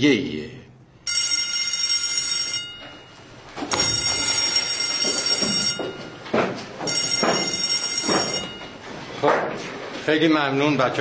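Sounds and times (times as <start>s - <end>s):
high ringing tone: 1.0s - 8.9s
footsteps: 2.7s - 10.2s.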